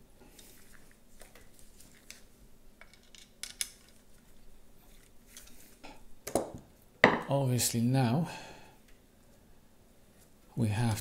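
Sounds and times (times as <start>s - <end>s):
plastic parts clicking and tapping: 2.8s - 4.0s.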